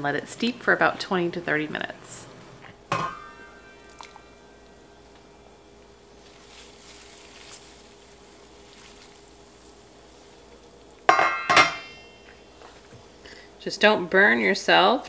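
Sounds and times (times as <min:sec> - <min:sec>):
metal cookware clanking: 0:02.9 - 0:04.0, 0:11.1 - 0:12.2
faint hiss of hot water: 0:03.8 - 0:11.2.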